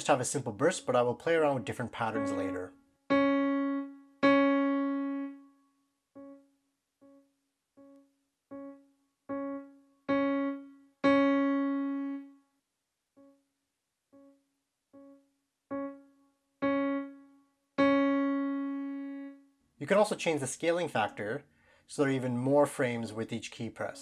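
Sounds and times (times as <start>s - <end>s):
digital piano note: 2.1s - 5.5s, 6.2s - 6.4s, 7.8s - 12.4s, 15.0s - 19.4s.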